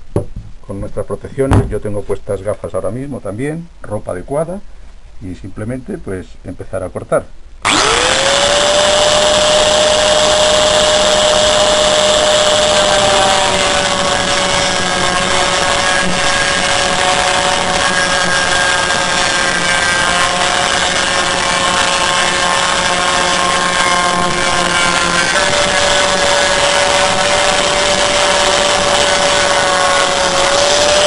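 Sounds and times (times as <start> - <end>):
angle grinder cutting metal: 7.6 - 31.0.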